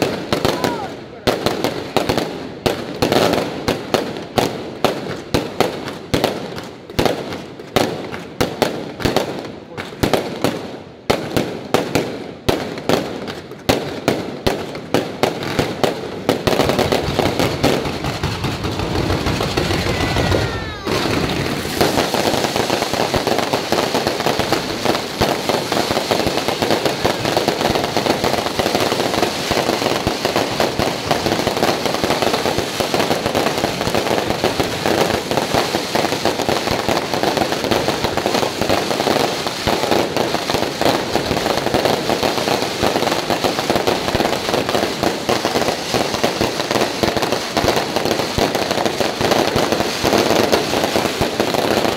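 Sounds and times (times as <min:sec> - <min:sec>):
fireworks bangs and crackling: 0:00.0 - 0:51.9
falling firework whistle: 0:19.0 - 0:23.3.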